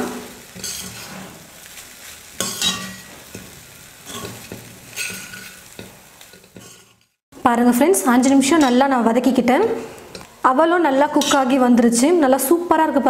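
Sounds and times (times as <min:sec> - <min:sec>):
metal spatula scraping a pan: 0:00.0 - 0:07.2, 0:08.0 - 0:09.0, 0:11.0 - 0:11.6
low sizzle of frying: 0:00.0 - 0:13.0.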